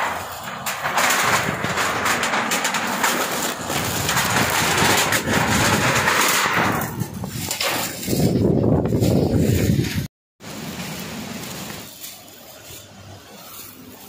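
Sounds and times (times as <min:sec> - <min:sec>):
wind and rain rushing: 0:00.0 - 0:12.0
wind buffeting microphone: 0:03.6 - 0:10.1.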